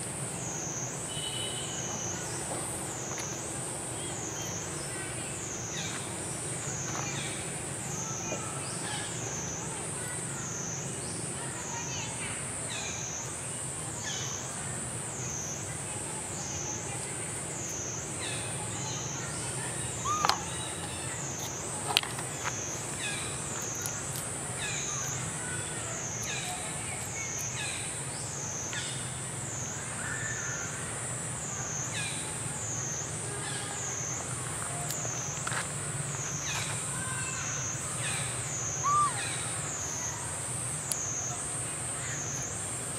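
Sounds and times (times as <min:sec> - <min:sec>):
cicadas droning: 0:00.0 - 0:42.9.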